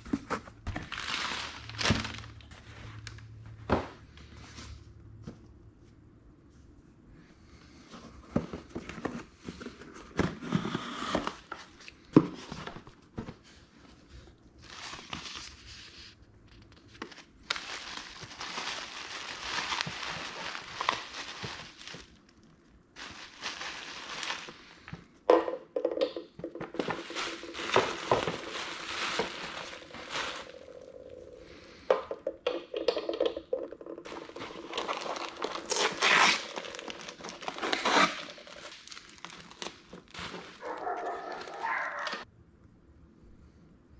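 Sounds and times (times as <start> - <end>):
bubble wrap crinkling: 0.7 - 2.7, 14.6 - 24.9, 26.6 - 31.7, 34.0 - 42.2.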